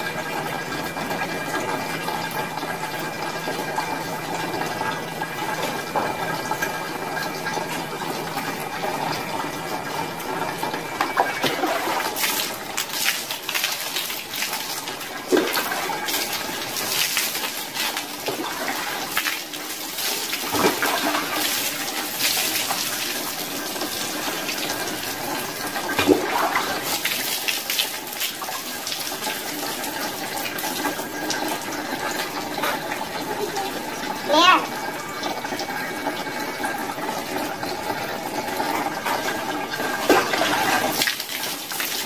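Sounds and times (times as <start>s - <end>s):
water splashing: 11.1s - 24.5s, 25.8s - 30.0s
water pouring over body: 11.1s - 33.2s, 35.4s - 42.0s.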